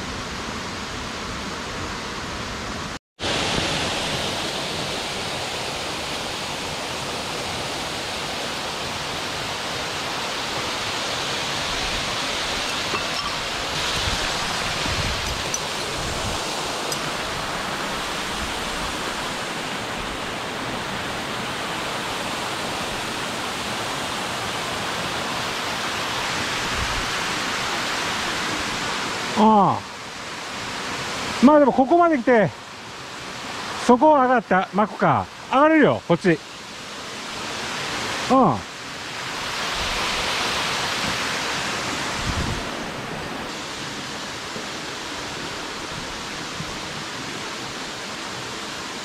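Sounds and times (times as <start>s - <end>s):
waterfall rushing: 0.6s - 49.0s.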